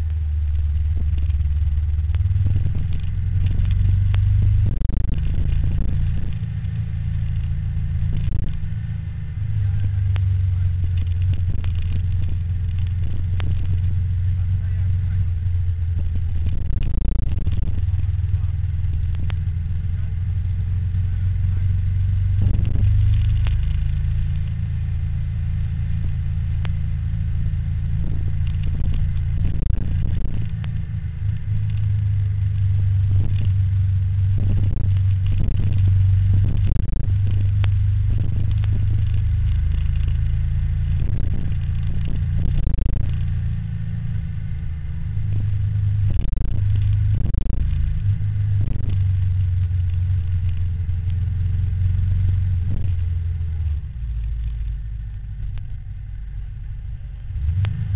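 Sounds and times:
low rumble of riding on road: 0:00.0 - 0:57.9
wind noise on microphone: 0:00.7 - 0:06.7, 0:07.3 - 0:08.8, 0:10.1 - 0:14.0, 0:15.8 - 0:19.4, 0:22.0 - 0:24.6, 0:27.9 - 0:43.5, 0:45.2 - 0:51.3, 0:52.4 - 0:55.9.

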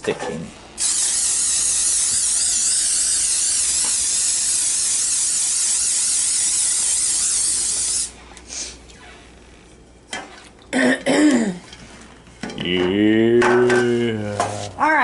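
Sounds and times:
aerosol spray hissing: 0:00.8 - 0:08.6.

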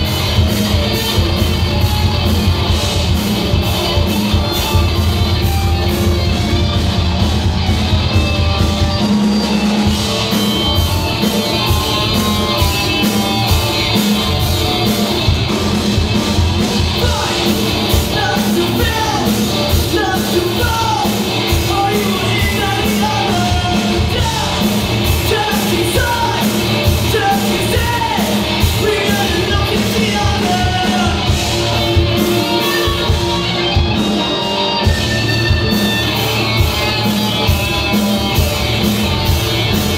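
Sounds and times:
live rock band playing: 0:00.0 - 0:39.9
lead vocalist singing: 0:16.8 - 0:31.4.

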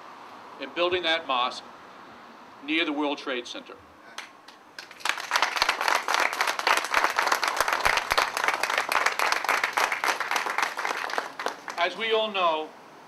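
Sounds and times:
crowd applauding: 0:04.2 - 0:11.9.

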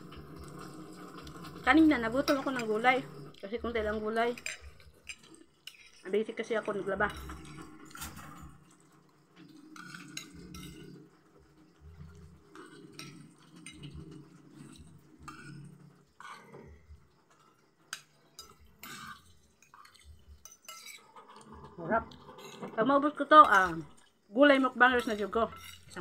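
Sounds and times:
soft chewing: 0:12.0 - 0:22.8
cutlery clinking on a plate: 0:17.9 - 0:21.4.

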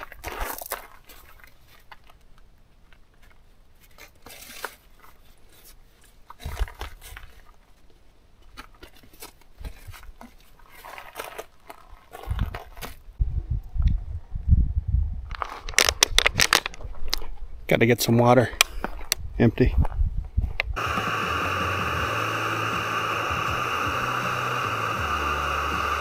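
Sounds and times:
knocks and crunches: 0:15.3 - 0:17.3.

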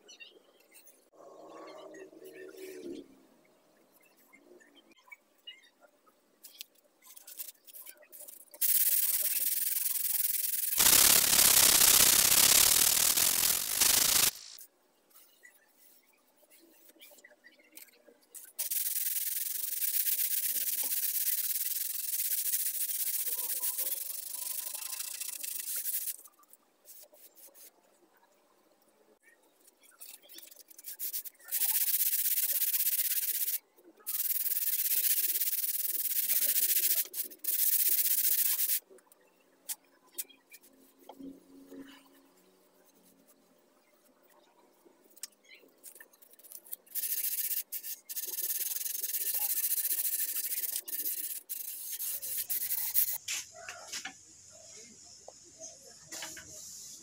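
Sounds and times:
sandpaper rubbing on wood: 0:08.6 - 0:14.6, 0:46.9 - 0:53.2.

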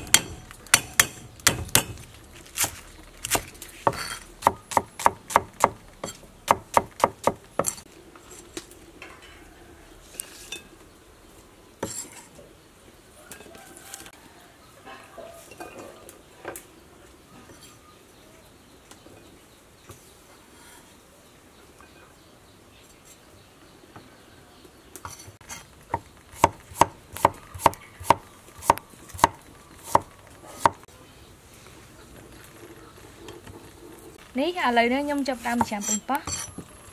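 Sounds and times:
knife chopping on wooden board: 0:02.6 - 0:07.8, 0:25.9 - 0:30.8.

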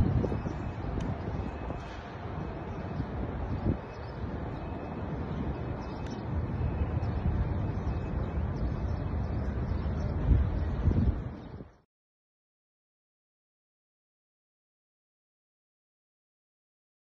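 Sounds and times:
wind buffeting microphone: 0:00.0 - 0:11.8.

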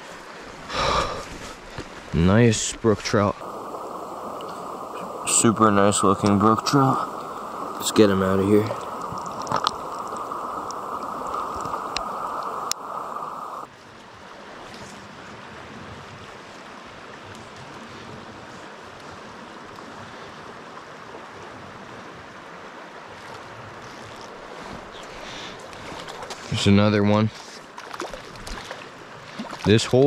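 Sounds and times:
stream flowing over rocks: 0:00.0 - 0:15.6, 0:18.6 - 0:30.0
muffled underwater water rushing: 0:00.0 - 0:30.0
faint clicks: 0:08.8 - 0:12.9.

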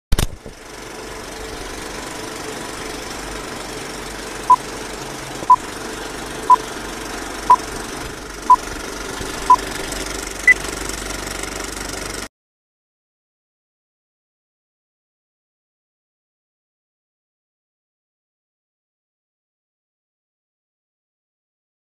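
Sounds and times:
film projector whirring rattle: 0:00.2 - 0:12.3.

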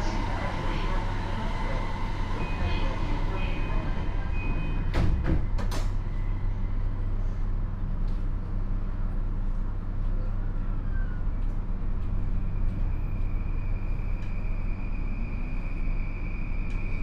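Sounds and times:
high-pitched train motor whine: 0:00.0 - 0:05.0, 0:12.0 - 0:17.0
train doors shutting: 0:00.0 - 0:06.4, 0:12.0 - 0:17.0.

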